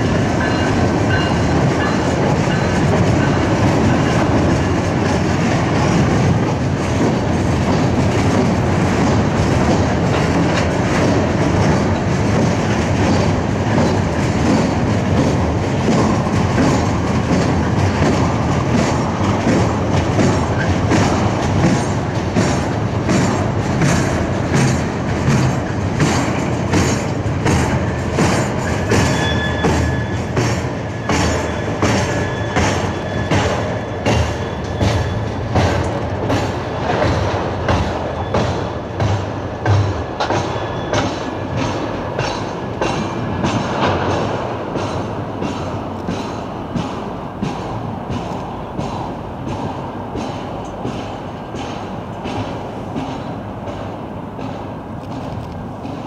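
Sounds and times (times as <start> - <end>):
clickety-clack over rail joints: 0.0 - 56.0
train wheels rumbling: 0.0 - 56.0
high wheel squeal: 28.2 - 36.9, 37.8 - 39.0, 40.2 - 42.5.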